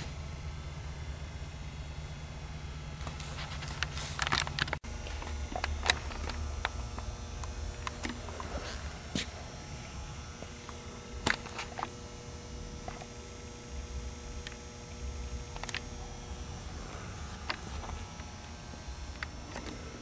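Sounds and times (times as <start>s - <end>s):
faint steady tones: 0.0s - 20.0s
steady low hum: 0.0s - 20.0s.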